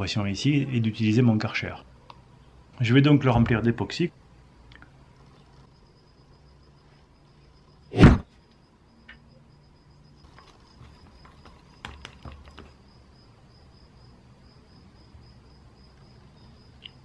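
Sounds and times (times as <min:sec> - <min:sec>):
stick scraping plastic cup: 0:10.2 - 0:12.7.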